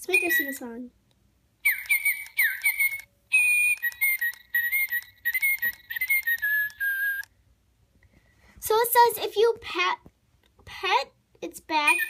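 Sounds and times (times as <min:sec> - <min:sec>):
electronic toy bird song: 0:00.0 - 0:00.8, 0:01.6 - 0:07.3, 0:11.8 - 0:12.0
quick clicks: 0:01.7 - 0:07.3.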